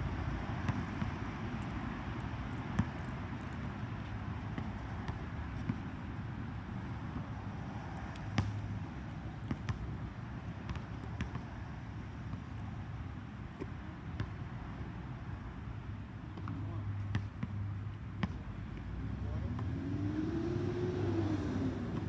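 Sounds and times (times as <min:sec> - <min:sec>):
basketball bouncing: 0:00.6 - 0:01.2, 0:02.7 - 0:03.1, 0:08.2 - 0:10.0, 0:10.6 - 0:11.5
ball hitting the rim: 0:08.3 - 0:08.6.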